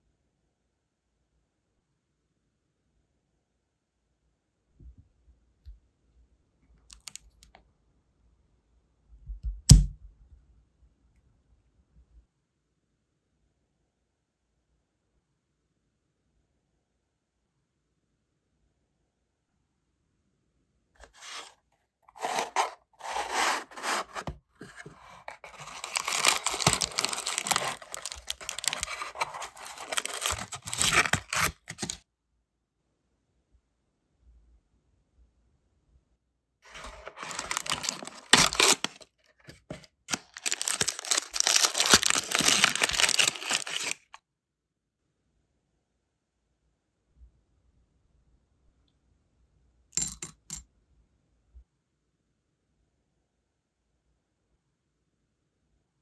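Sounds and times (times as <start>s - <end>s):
paper packing rustling and crinkling: 21.0s - 32.0s, 36.7s - 44.2s.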